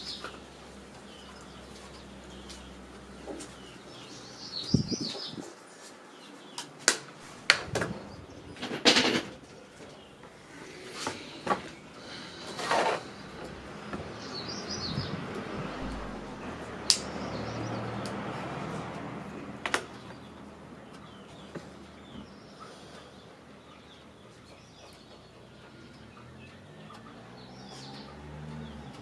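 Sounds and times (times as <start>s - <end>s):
bird chirping: 0.0s - 18.2s.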